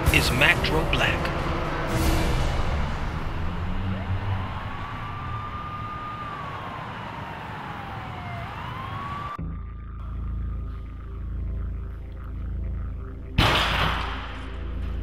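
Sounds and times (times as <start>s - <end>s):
siren wailing: 2.4s - 12.3s
low droning rumble: 9.4s - 15.0s.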